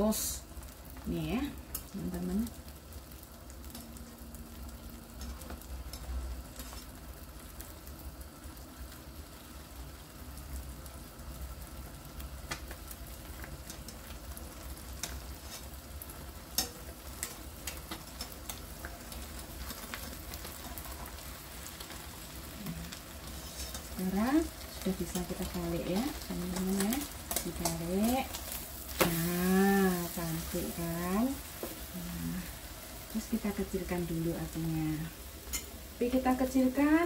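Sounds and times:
egg and bread sizzling in pan: 0:00.0 - 0:37.0.

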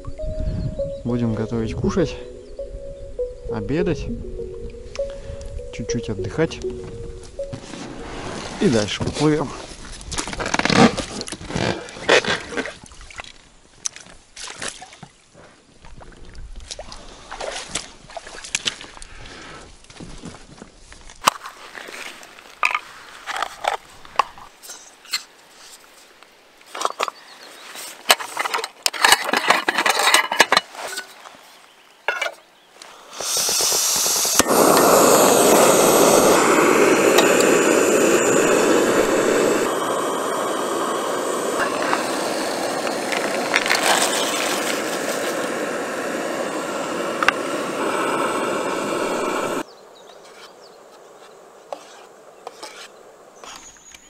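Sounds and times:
camping stove clicks and rattles: 0:28.1 - 0:30.7
gas burner hissing: 0:32.8 - 0:49.6.

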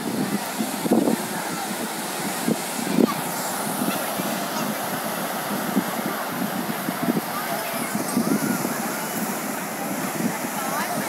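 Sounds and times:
beach crowd chatter: 0:00.0 - 0:11.0
surf breaking on beach: 0:00.0 - 0:11.0
wind on microphone: 0:00.0 - 0:11.0.

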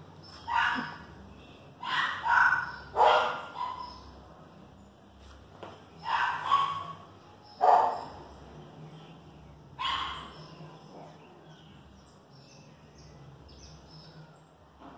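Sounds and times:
dog barking: 0:00.5 - 0:01.0, 0:01.8 - 0:04.0, 0:06.0 - 0:07.0, 0:07.6 - 0:08.1, 0:09.8 - 0:10.4.

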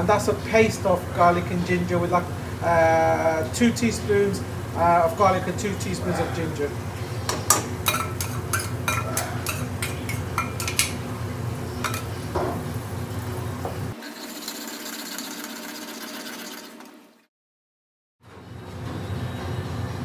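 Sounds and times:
low kitchen hum: 0:00.0 - 0:16.6
metal spoon scraping metal bowl: 0:07.4 - 0:11.0, 0:14.0 - 0:16.6.

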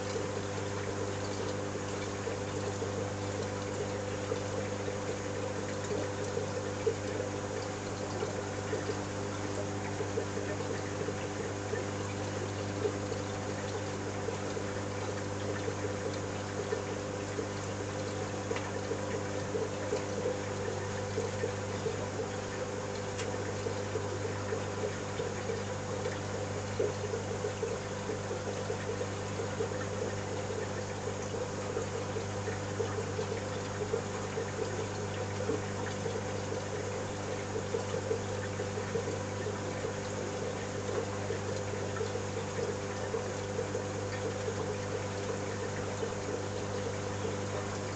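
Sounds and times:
aquarium pumps humming: 0:00.0 - 0:47.9
trickling water: 0:00.0 - 0:47.9.

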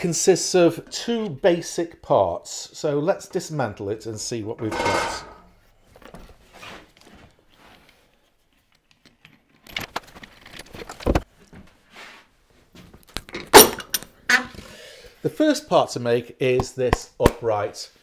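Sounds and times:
parts clicking and rattling: 0:08.7 - 0:11.3, 0:13.0 - 0:14.2.

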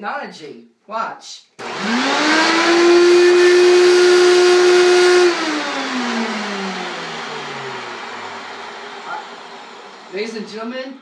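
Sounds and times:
vacuum cleaner motor whining: 0:01.6 - 0:11.0.

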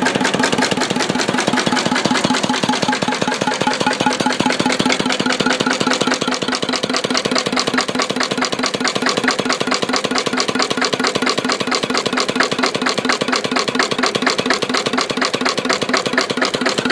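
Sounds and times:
stationary diesel engine knocking: 0:00.0 - 0:16.9.

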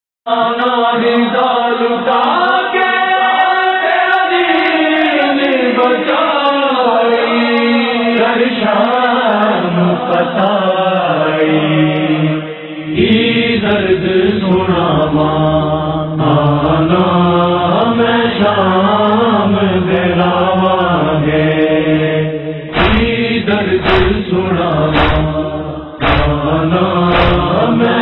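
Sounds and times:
wordless vocal chanting: 0:00.3 - 0:28.0.

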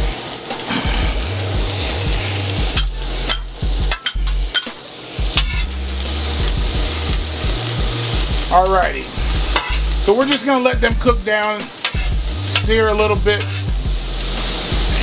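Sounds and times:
vegetables sizzling on a griddle: 0:00.0 - 0:15.0
metal spatula scraping steel: 0:05.4 - 0:05.8, 0:09.4 - 0:10.5, 0:11.8 - 0:12.7, 0:13.3 - 0:13.7.

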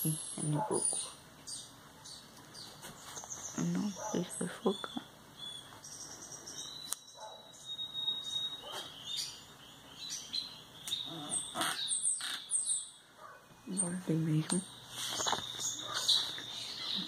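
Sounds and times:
bird chirping and whistling: 0:04.4 - 0:14.0.

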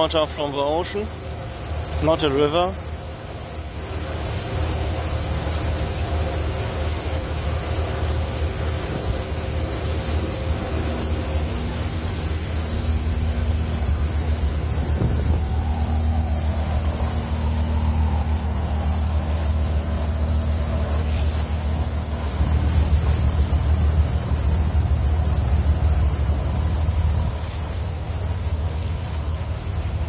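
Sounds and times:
boat engine droning: 0:00.0 - 0:30.0
water and air rushing: 0:00.0 - 0:30.0.

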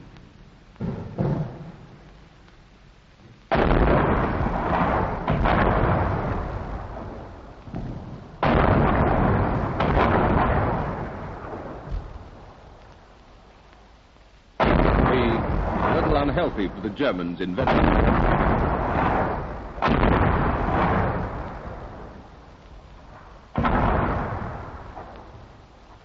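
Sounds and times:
smaller bangs: 0:03.5 - 0:12.6, 0:14.6 - 0:22.3, 0:23.1 - 0:25.4
heavy gun reports rumbling: 0:14.6 - 0:25.4.

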